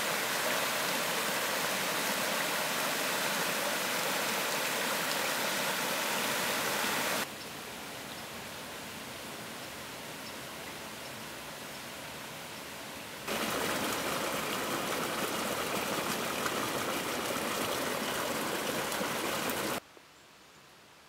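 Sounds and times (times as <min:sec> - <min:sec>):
stream running over stones: 0:00.0 - 0:07.3, 0:11.3 - 0:19.8.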